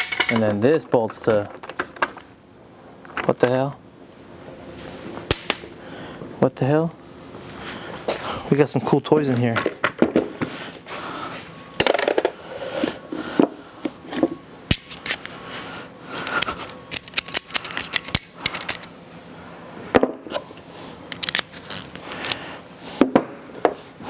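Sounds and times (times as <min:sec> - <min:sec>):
metal tools clinking: 0:00.0 - 0:02.2, 0:16.6 - 0:18.9.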